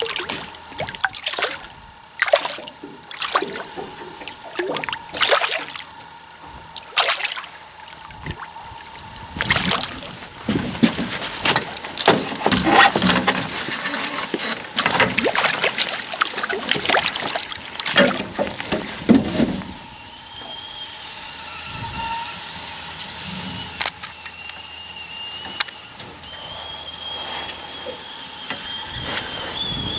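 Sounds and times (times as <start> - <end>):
water splashing: 0.0 - 19.3
thin high whistled tones: 19.8 - 29.9.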